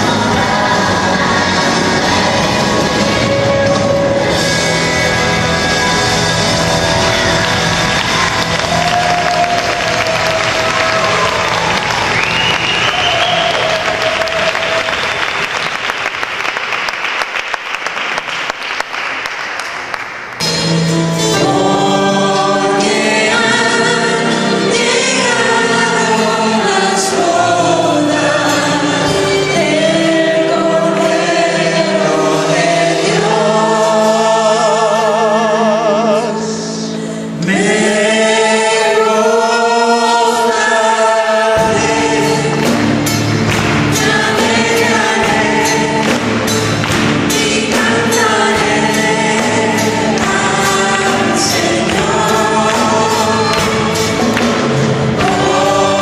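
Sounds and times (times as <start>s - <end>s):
worship band singing: 0.0s - 15.9s, 20.5s - 56.0s
audience applause: 6.6s - 20.4s.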